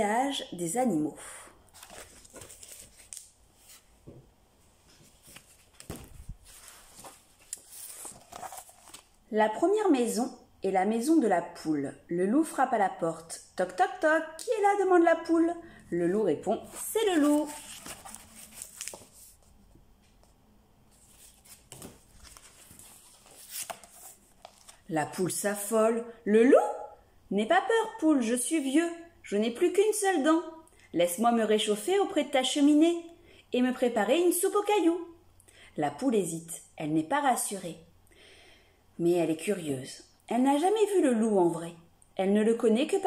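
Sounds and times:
book page turning: 0:01.7 - 0:03.9, 0:04.8 - 0:09.2, 0:16.6 - 0:25.2.

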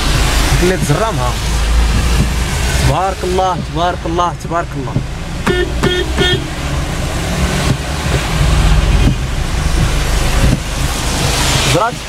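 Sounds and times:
car engine hum: 0:00.0 - 0:12.0
tyres on wet road: 0:00.0 - 0:12.0
car horn toots: 0:05.4 - 0:06.7.

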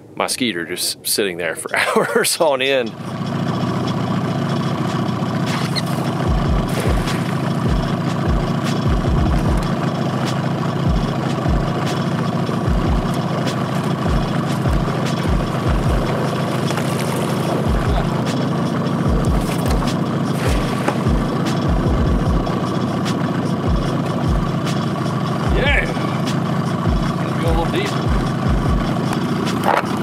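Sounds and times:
outboard motor idling: 0:01.7 - 0:30.0
low thumps: 0:06.3 - 0:09.9, 0:12.7 - 0:13.3, 0:13.9 - 0:18.4, 0:19.0 - 0:22.7, 0:26.9 - 0:29.2.

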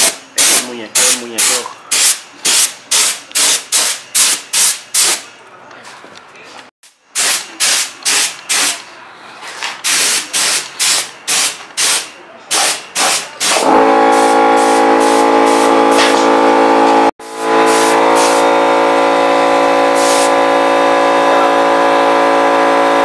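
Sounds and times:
spray gun hissing in bursts: 0:00.0 - 0:05.2, 0:07.2 - 0:08.8, 0:09.8 - 0:15.7, 0:17.7 - 0:18.5, 0:20.0 - 0:20.3
air compressor motor humming: 0:13.0 - 0:23.0.

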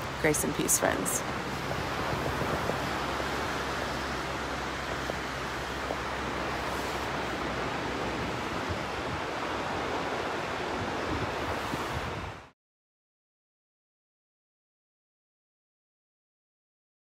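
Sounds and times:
wind buffeting microphone: 0:00.0 - 0:12.5
ocean waves breaking: 0:00.0 - 0:12.6.

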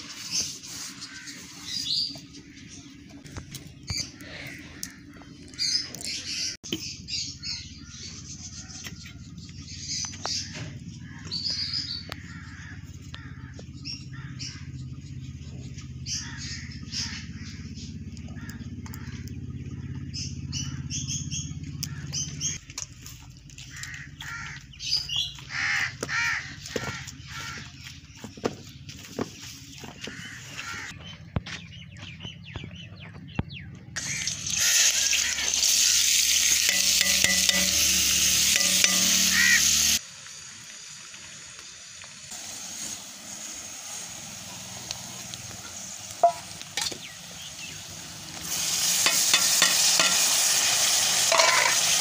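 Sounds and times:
small birds chirping: 0:00.0 - 0:40.0, 0:44.4 - 0:50.2
crows cawing: 0:01.0 - 0:02.0, 0:03.9 - 0:05.9, 0:10.4 - 0:14.8, 0:16.1 - 0:17.7, 0:18.3 - 0:20.0, 0:21.8 - 0:22.4, 0:23.6 - 0:28.0, 0:30.0 - 0:31.0, 0:34.0 - 0:38.0, 0:38.6 - 0:40.0, 0:49.1 - 0:52.0.

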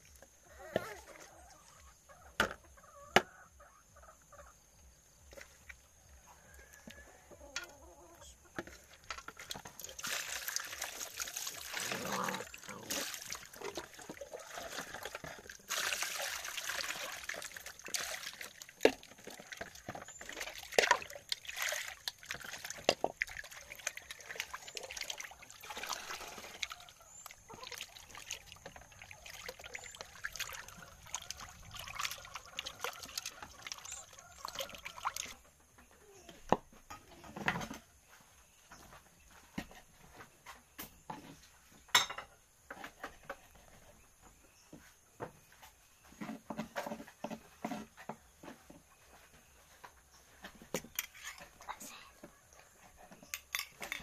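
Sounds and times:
water sloshing in metal basin: 0:08.5 - 0:35.4.

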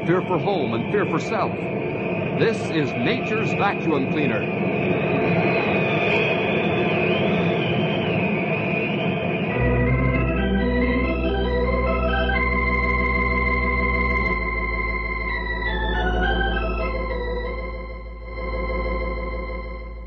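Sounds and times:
rushing wind-like noise: 0:00.0 - 0:09.6
organ music: 0:00.0 - 0:20.0.

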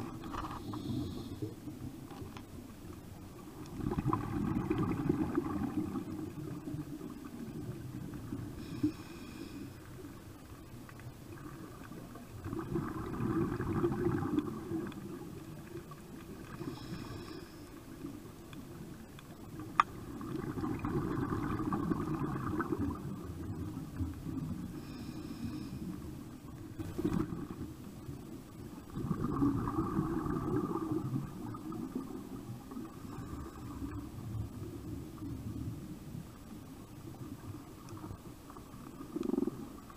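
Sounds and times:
inhalation hiss: 0:00.4 - 0:01.6, 0:08.6 - 0:10.2, 0:16.5 - 0:17.8, 0:24.8 - 0:26.0
bubbly regulator exhalations: 0:03.7 - 0:06.6, 0:12.4 - 0:15.0, 0:20.2 - 0:23.2, 0:28.9 - 0:32.1.

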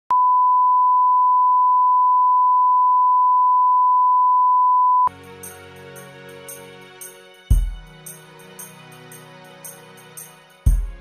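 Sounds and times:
soft music: 0:05.1 - 0:11.0.

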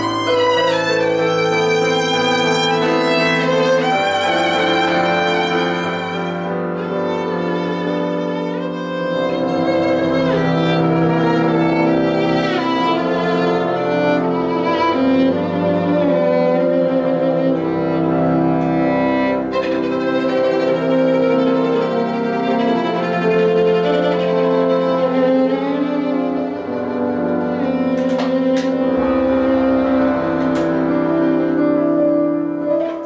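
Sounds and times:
violin melody with vibrato: 0:00.0 - 0:33.0.

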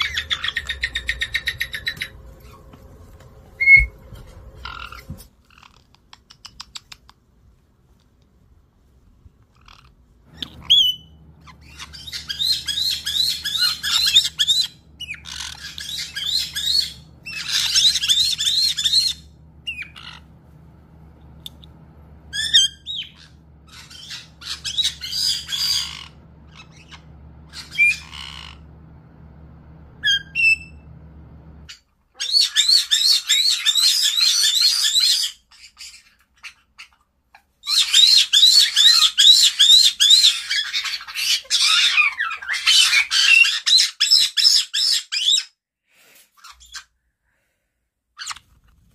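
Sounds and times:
parrot squawks: 0:00.0 - 0:02.6, 0:09.6 - 0:20.3, 0:22.3 - 0:28.6, 0:31.7 - 0:37.0, 0:37.6 - 0:45.5
parrots shrieking: 0:00.0 - 0:02.7, 0:03.6 - 0:03.9, 0:04.5 - 0:05.9, 0:09.5 - 0:20.3, 0:22.3 - 0:28.9, 0:30.0 - 0:30.9, 0:31.7 - 0:45.5.

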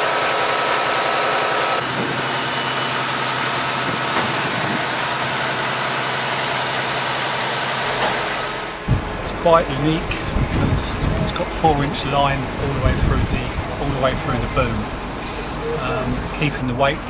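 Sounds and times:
concrete pump engine drone: 0:00.0 - 0:17.0.

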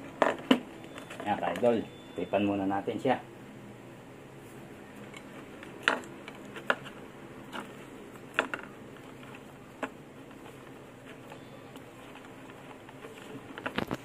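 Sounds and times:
electrical tape crackling off roll: 0:07.5 - 0:14.0.

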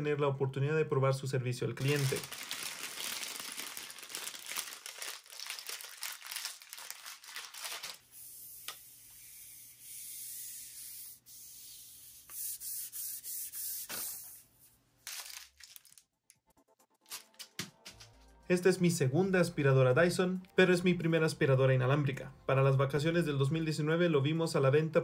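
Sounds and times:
paper packaging crinkling: 0:01.8 - 0:08.1, 0:15.0 - 0:16.2, 0:17.1 - 0:18.4
paper rubbing hiss: 0:07.8 - 0:14.8.

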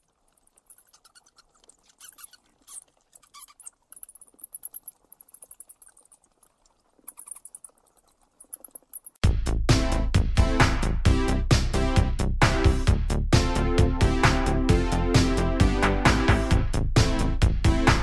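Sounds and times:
bats squeaking and chittering: 0:00.0 - 0:09.2.

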